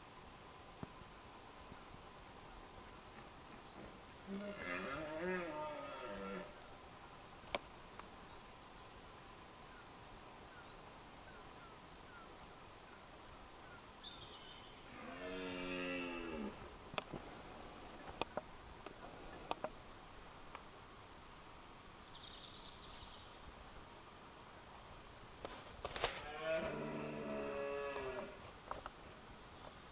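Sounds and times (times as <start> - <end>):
small birds chirping: 0.8 - 23.6
deer stag roaring: 4.3 - 6.5.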